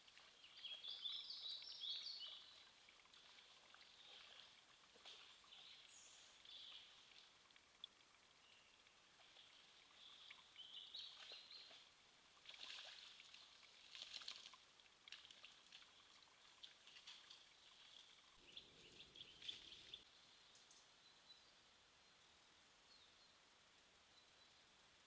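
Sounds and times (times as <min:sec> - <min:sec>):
small birds singing: 0:00.2 - 0:07.2, 0:08.3 - 0:12.0, 0:17.2 - 0:23.4.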